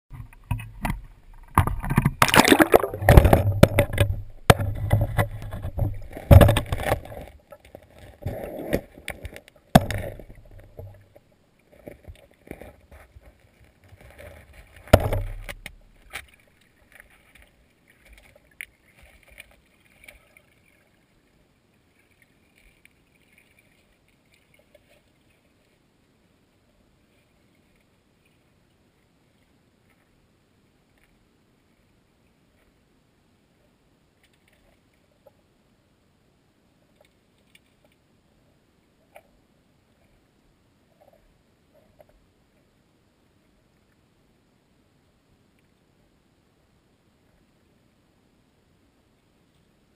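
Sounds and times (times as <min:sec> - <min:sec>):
creek water splashing: 0:00.1 - 0:25.9
faint underwater gurgle: 0:00.1 - 0:35.7.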